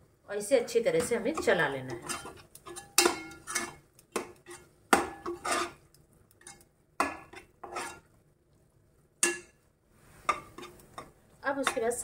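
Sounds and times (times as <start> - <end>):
wooden spatula scraping pot: 0.6 - 8.2, 10.1 - 12.0.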